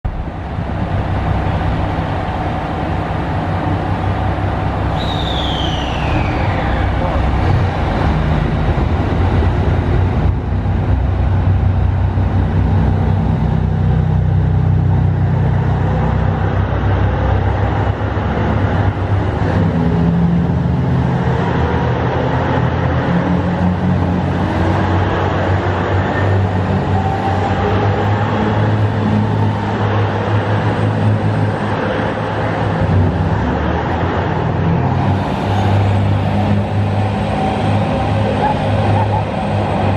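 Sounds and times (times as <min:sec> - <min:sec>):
diesel train engines under load: 0:00.0 - 0:39.9
rising whine: 0:00.1 - 0:22.6.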